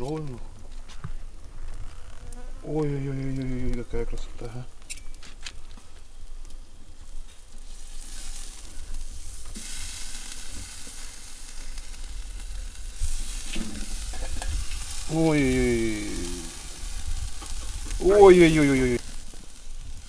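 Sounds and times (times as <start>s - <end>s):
meat sizzling: 5.6s - 20.0s.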